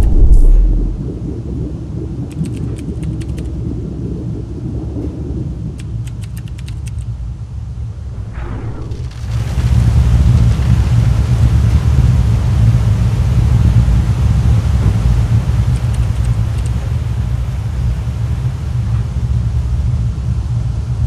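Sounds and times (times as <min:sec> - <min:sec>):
brief whoosh: 0:00.0 - 0:01.1, 0:07.9 - 0:10.1
deep steady rumble: 0:00.0 - 0:21.0
sharp clicks: 0:02.3 - 0:03.5, 0:05.8 - 0:07.1, 0:15.7 - 0:16.8.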